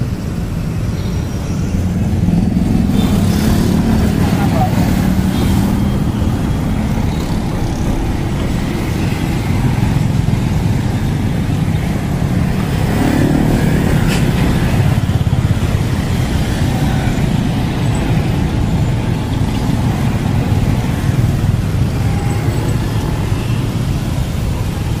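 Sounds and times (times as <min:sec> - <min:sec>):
motorbikes and cars passing: 0:00.0 - 0:25.0.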